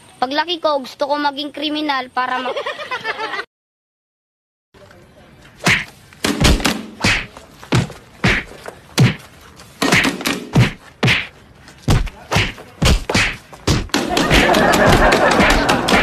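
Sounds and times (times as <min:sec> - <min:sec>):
heavy thuds and sharp slaps: 0:05.6 - 0:16.0.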